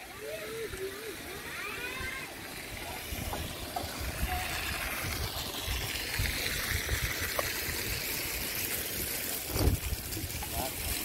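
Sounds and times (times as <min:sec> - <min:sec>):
running water: 0:00.0 - 0:11.0
wind rumbling on microphone: 0:09.4 - 0:10.4.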